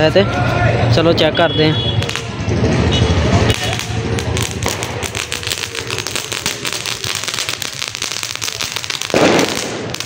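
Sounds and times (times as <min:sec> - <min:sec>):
firecrackers popping and crackling: 0:02.0 - 0:10.0
loud firecracker burst: 0:02.0 - 0:10.0.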